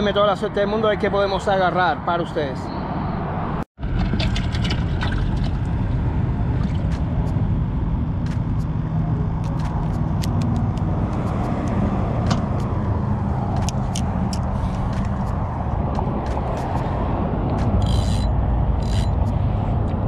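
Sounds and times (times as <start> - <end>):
low rumble: 3.8 - 20.0.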